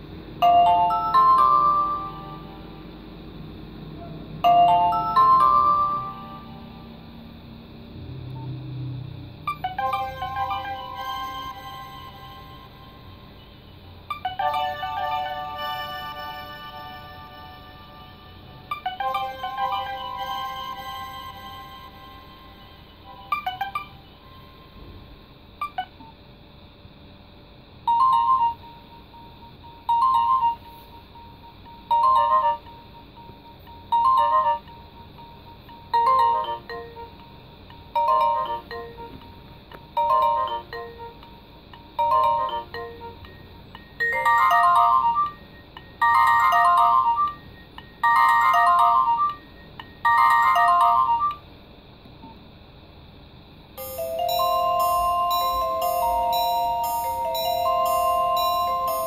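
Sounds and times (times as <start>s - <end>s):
mobile phone alarm beeps: 22.6s - 24.3s, 25.6s - 25.9s, 27.9s - 37.2s, 53.8s - 59.0s.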